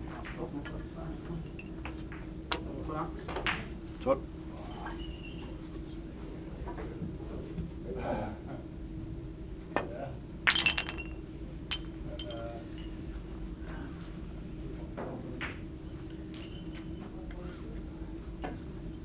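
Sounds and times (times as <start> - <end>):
billiard balls clicking: 10.5 - 12.6, 15.4 - 17.0.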